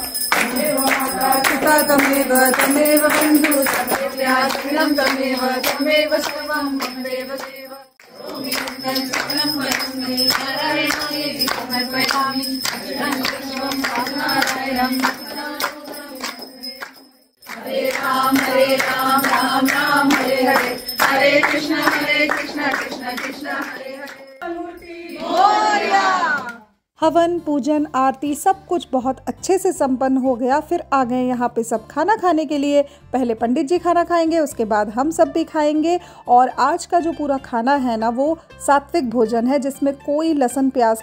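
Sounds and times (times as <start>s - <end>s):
rhythmic hand-clapping: 0.0s - 26.6s
women singing together: 0.0s - 26.6s.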